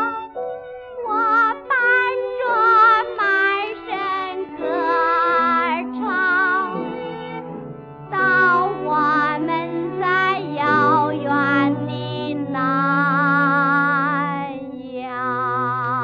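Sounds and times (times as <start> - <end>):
instrumental accompaniment: 0.0 - 16.0
woman singing with vibrato: 1.0 - 7.1, 8.1 - 16.0.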